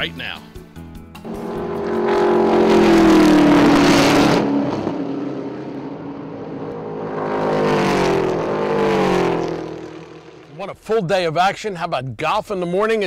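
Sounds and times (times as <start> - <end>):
racing cars passing at speed: 1.2 - 10.6.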